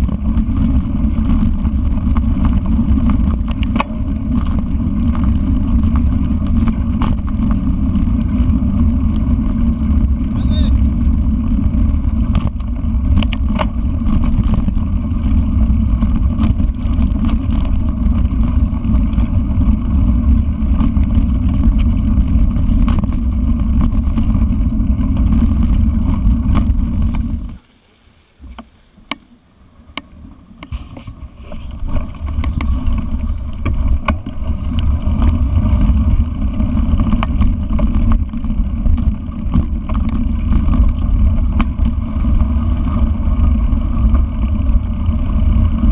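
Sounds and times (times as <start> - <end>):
wind buffeting microphone: 0.0 - 27.6, 29.8 - 45.9
bike rolling on dirt trail: 0.0 - 45.9
sharp clicks and knocks: 2.1 - 4.6, 12.3 - 14.7.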